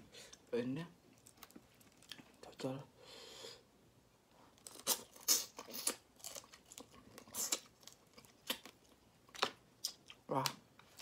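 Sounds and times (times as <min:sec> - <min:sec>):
wet sucking and chewing: 0:04.6 - 0:08.7.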